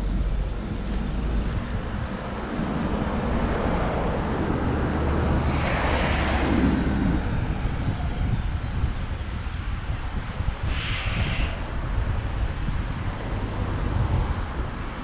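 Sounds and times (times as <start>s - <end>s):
vehicle passing by: 0.0s - 8.9s
wind rumbling on microphone: 0.0s - 15.0s.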